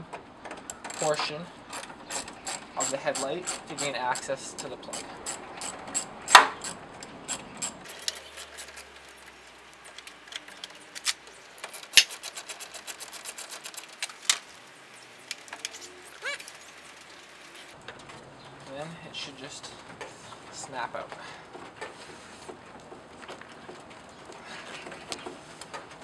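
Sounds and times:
rapid clicking: 0:00.7 - 0:17.8.

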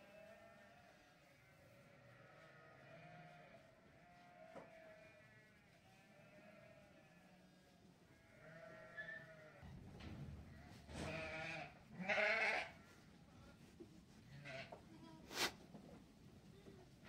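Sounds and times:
sheep bleating: 0:00.0 - 0:09.7, 0:10.6 - 0:12.9, 0:14.3 - 0:14.8.

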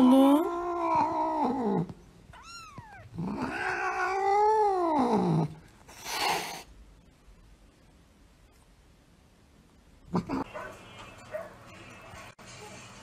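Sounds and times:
cat hissing: 0:00.4 - 0:06.8
cat yowling: 0:02.4 - 0:05.4.

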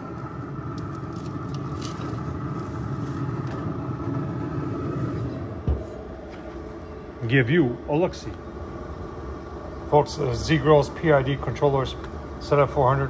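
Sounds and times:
pellet grill humming: 0:00.0 - 0:13.0
thump: 0:05.6 - 0:06.0.

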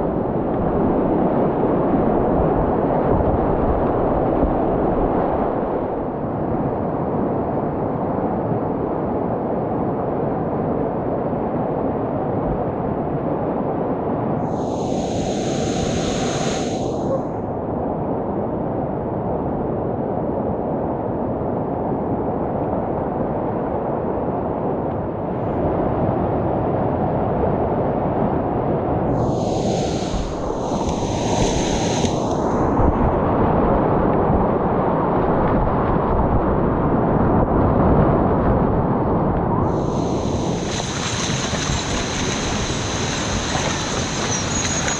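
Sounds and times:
whitewater rapids rushing: 0:29.3 - 0:32.9, 0:39.8 - 0:44.9.

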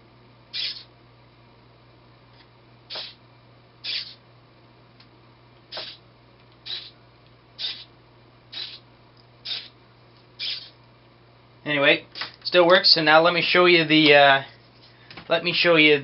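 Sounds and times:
small servo motor whirring: 0:00.5 - 0:00.9, 0:02.9 - 0:03.2, 0:03.8 - 0:04.2, 0:05.7 - 0:06.0, 0:06.6 - 0:07.0, 0:07.6 - 0:07.9, 0:08.5 - 0:08.8, 0:09.4 - 0:09.8, 0:10.4 - 0:10.8.

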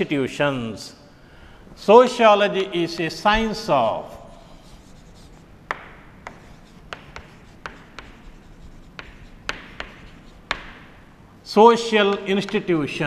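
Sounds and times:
chalk scratching on chalkboard: 0:04.2 - 0:10.8
chalk tapping on chalkboard: 0:04.4 - 0:11.0, 0:12.1 - 0:12.7.

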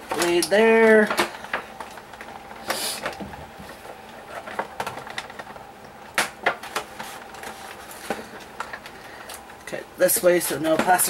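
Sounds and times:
packaging rustle: 0:06.4 - 0:09.6.

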